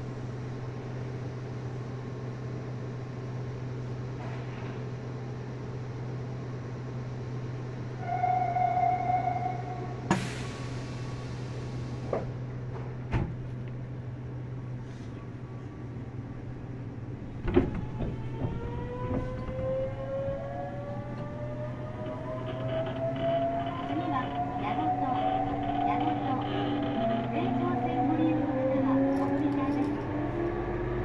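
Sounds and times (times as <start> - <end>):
low train hum: 0.0 - 31.0
train clunks: 9.4 - 13.8, 17.2 - 30.6
rising inverter whine: 17.8 - 31.0.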